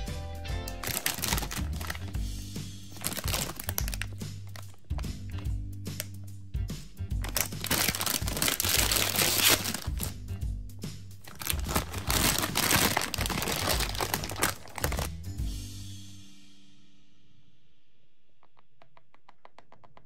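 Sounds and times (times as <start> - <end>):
background music: 0.0 - 17.4
plastic bag crinkling: 0.7 - 2.2, 2.9 - 5.5, 7.2 - 10.2, 11.2 - 15.2.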